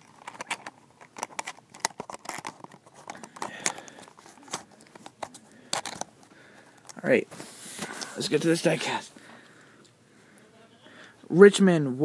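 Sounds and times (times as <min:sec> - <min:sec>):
plastic packaging clicks and crinkles: 0:00.0 - 0:07.1.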